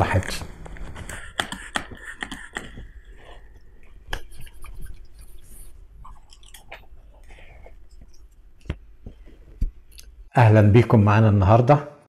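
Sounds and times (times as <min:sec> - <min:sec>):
palms rubbing together: 0:00.7 - 0:05.9.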